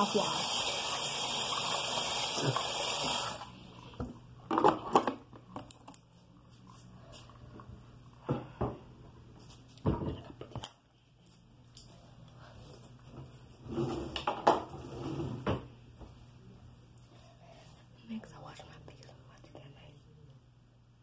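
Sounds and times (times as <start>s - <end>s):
bathroom tap running: 0.0s - 3.7s
small items knocking and clattering: 4.4s - 6.0s.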